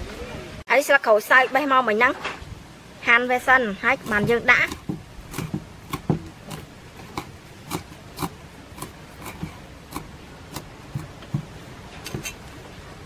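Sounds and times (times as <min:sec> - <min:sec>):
cleaver chopping on wooden board: 0:04.0 - 0:12.5.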